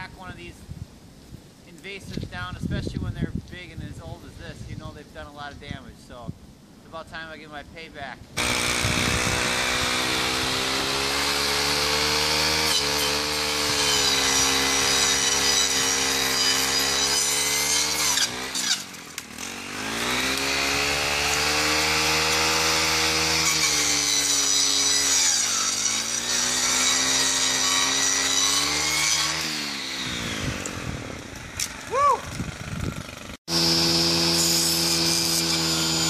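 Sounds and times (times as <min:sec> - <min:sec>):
brush cutter sawing wood: 0:07.2 - 0:36.0.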